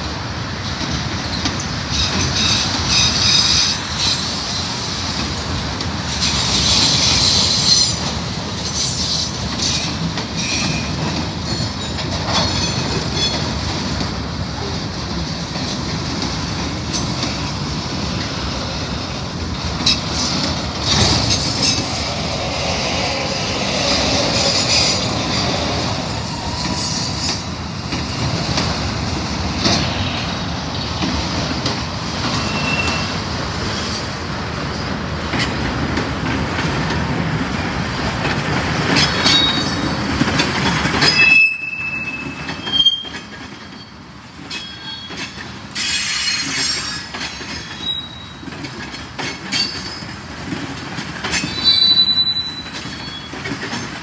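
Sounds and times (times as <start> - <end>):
high-pitched wheel squeals: 32.4 - 33.2, 41.1 - 43.2, 47.6 - 48.4, 51.4 - 53.3.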